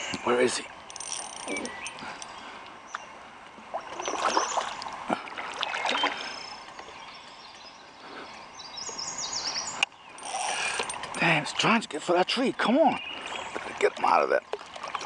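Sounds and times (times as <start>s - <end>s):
boat handling noises: 0.0s - 7.0s, 10.2s - 15.0s
water moving around kayak hull: 0.6s - 9.2s, 12.6s - 15.0s.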